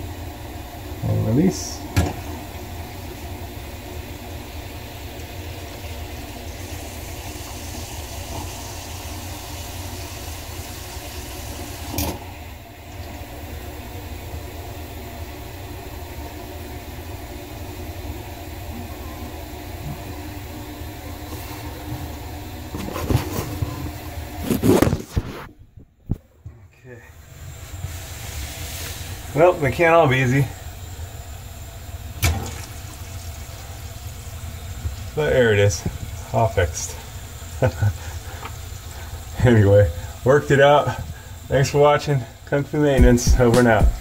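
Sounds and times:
motor hum: 42.8s - 44.0s
knocks: 43.0s - 44.0s.

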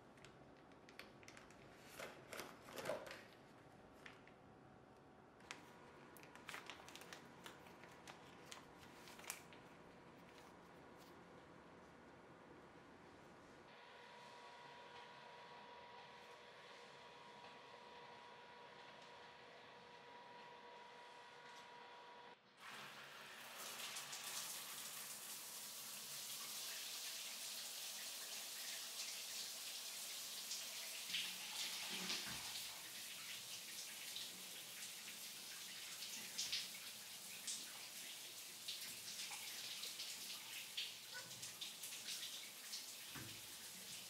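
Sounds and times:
shower water spraying: 22.6s - 44.0s
water splashes and drips: 22.6s - 44.0s.

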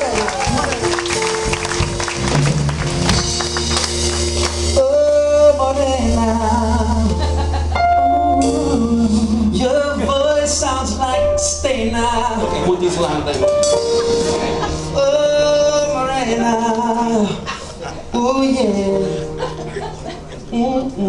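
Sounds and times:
audience applause: 0.0s - 4.8s
live band music: 0.0s - 21.0s.

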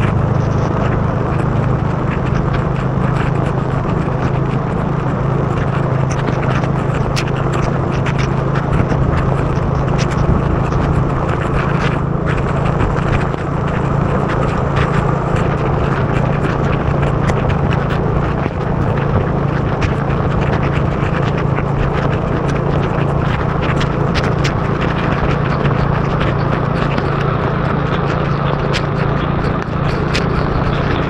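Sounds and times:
motorbike engine and wind drone: 0.0s - 31.0s
raindrops hitting camera: 0.0s - 31.0s.

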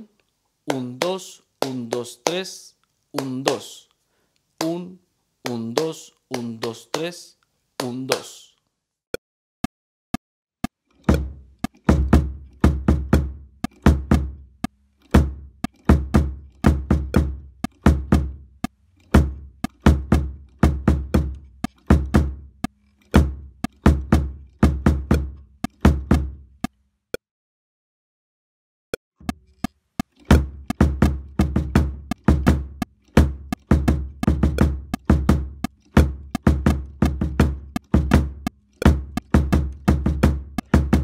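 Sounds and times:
click track: 10.6s - 12.7s, 13.6s - 13.9s, 14.6s - 26.8s, 29.2s - 41.0s
bass drum kicks: 11.1s - 14.4s, 15.2s - 18.5s, 19.1s - 22.5s, 23.2s - 26.5s, 30.3s - 41.0s.

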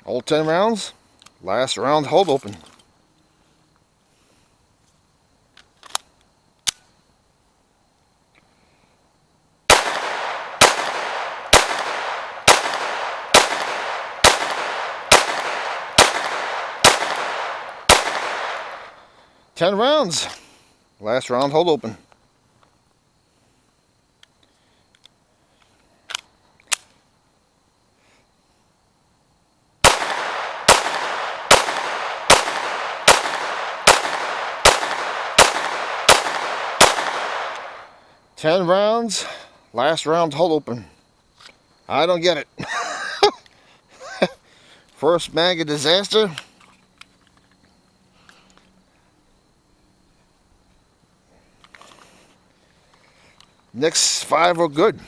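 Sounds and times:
pistol shots cracking: 9.7s - 19.0s, 29.8s - 38.0s.

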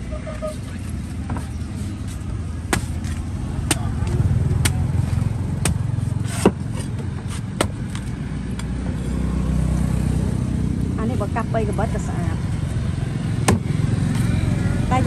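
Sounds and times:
street traffic rumble: 0.0s - 15.0s
cleaver chopping coconut husk: 2.6s - 8.9s.

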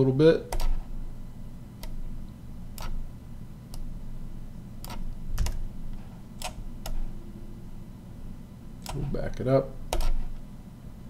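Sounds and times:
low steady hum: 0.0s - 11.0s
mouse and keyboard clicks: 9.9s - 10.4s.

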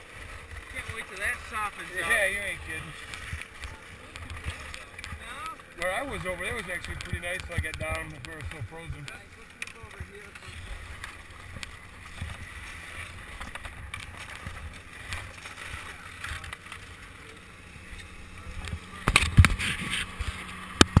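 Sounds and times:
wind on microphone: 18.6s - 21.0s.

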